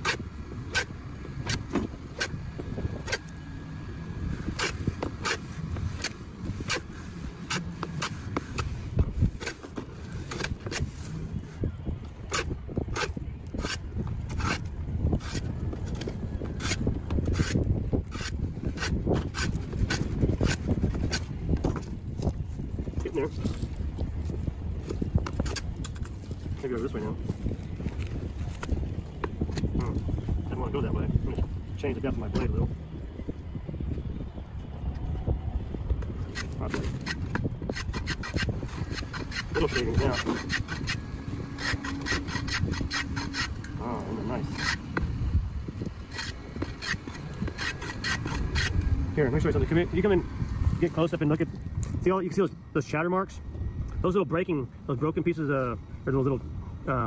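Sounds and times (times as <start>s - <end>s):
steady low rumble: 0.0s - 57.0s
hand plane scraping wood: 12.3s - 21.3s, 36.4s - 43.6s, 44.4s - 44.8s, 46.1s - 48.8s.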